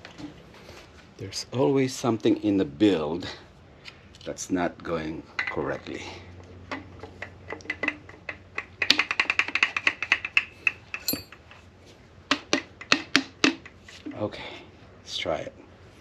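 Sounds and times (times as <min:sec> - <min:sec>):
ringing metallic tool clicks: 0:11.0 - 0:11.4.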